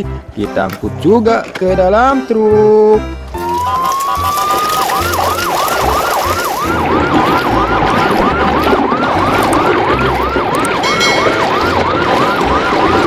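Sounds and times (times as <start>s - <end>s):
electronic siren yelping: 3.4s - 13.0s.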